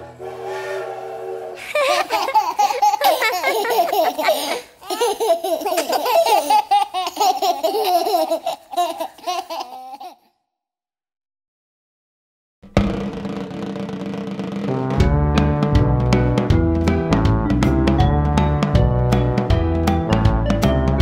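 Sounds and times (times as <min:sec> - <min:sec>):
children laughing: 0:01.6 - 0:10.3.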